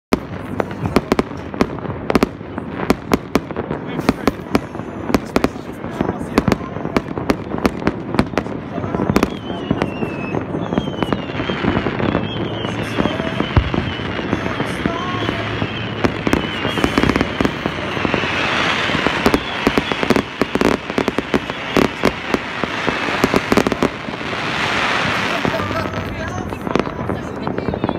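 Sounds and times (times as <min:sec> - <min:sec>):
firecracker bangs: 0:00.1 - 0:27.9
fireworks bangs and pops: 0:00.1 - 0:27.9
hissing crackle: 0:00.1 - 0:27.9
whistling rockets falling: 0:04.0 - 0:25.8.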